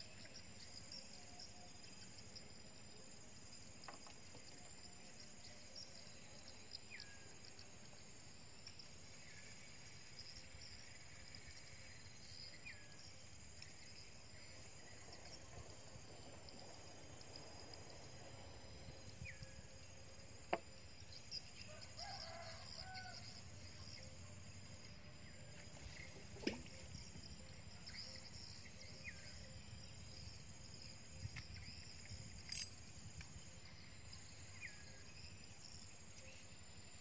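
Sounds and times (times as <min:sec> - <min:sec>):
high insect buzz: 0:16.1 - 0:37.0.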